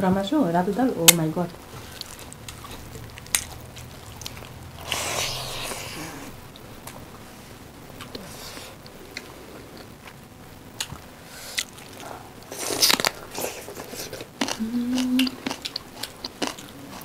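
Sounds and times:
chewing crunches: 1.8 - 6.7, 10.8 - 17.0
mouth and hand sounds: 1.8 - 7.0, 10.8 - 15.6.

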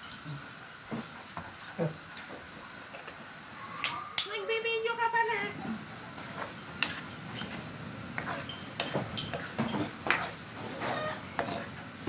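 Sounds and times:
ladle scraping wok: 5.8 - 12.0.

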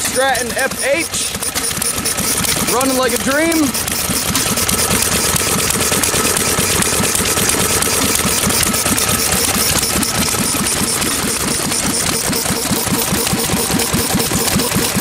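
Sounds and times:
single-cylinder engine running: 0.0 - 15.0.

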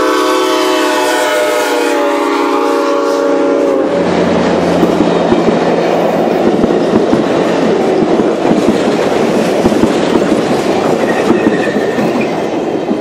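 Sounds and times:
train wheels rumbling on rails: 0.0 - 13.0
sharp rail clicks: 4.2 - 13.0.

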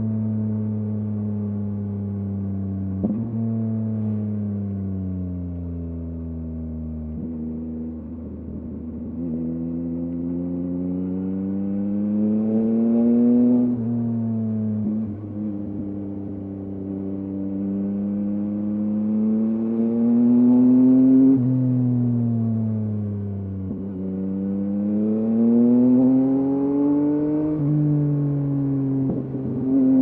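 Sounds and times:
motorcycle engine accelerating: 0.0 - 30.0.

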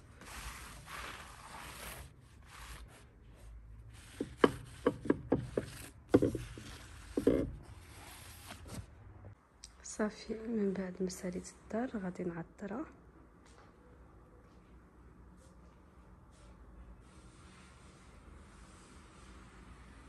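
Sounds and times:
cloth wiping a surface: 0.0 - 8.9
household objects knocking and clattering: 4.2 - 7.6.

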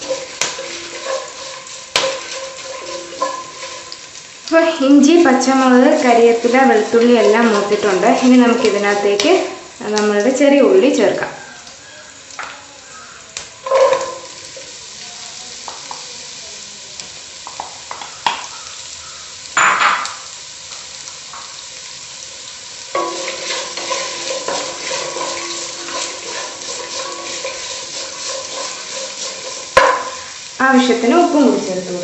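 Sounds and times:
wooden spatula scraping pan: 0.0 - 4.1, 5.0 - 9.5, 13.6 - 14.6, 23.0 - 30.3
shallots sizzling in hot oil: 0.0 - 32.0.

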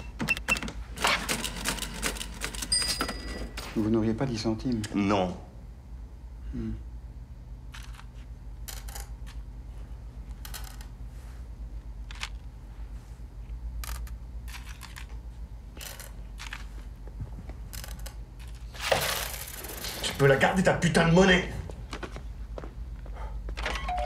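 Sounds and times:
coins clinking on metal counter: 1.4 - 3.7
low steady hum: 2.0 - 24.0.

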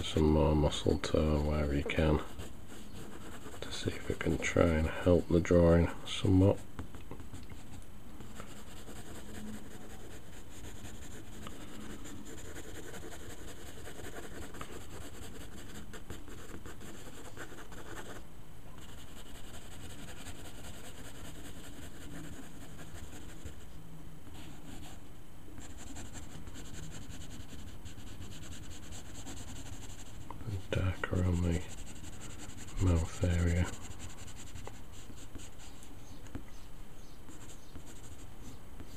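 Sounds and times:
pencil scratching on paper: 1.9 - 4.8, 8.2 - 18.2, 18.8 - 23.6, 25.6 - 35.9.

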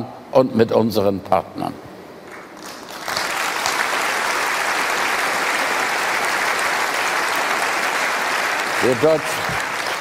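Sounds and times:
audience applause: 2.3 - 10.0.

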